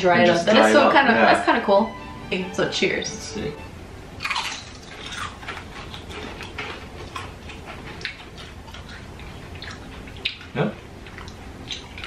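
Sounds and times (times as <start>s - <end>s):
people chewing crunchy chips: 4.2s - 12.0s.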